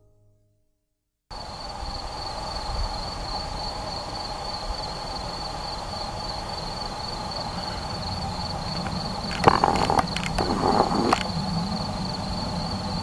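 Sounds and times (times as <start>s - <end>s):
distant fireworks rumble: 6.9s - 12.4s.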